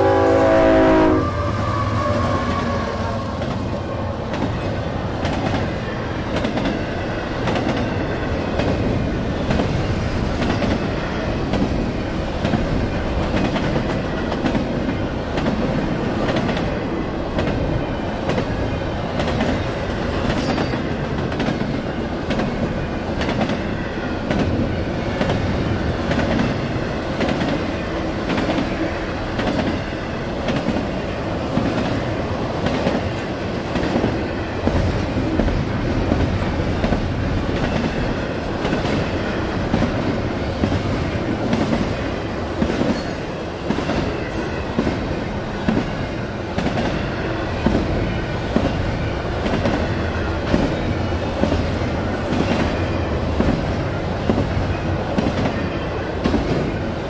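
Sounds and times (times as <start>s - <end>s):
train rumble: 0.0s - 57.0s
train wheels clicking over rail joints: 3.4s - 47.0s.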